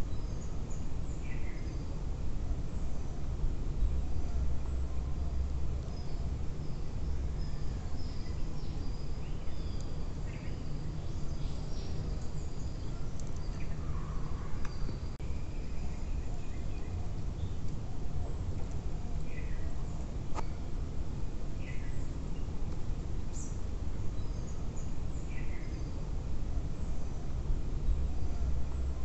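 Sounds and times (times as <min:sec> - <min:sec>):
low wind rumble: 0:00.0 - 0:29.0
bird chirps: 0:05.2 - 0:17.6.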